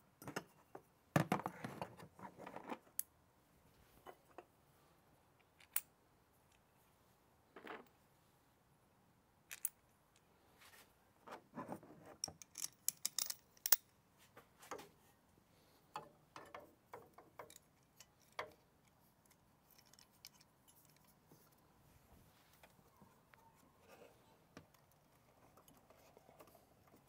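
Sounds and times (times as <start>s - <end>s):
metal parts clicking and tapping: 12.2s - 13.9s, 15.9s - 21.1s.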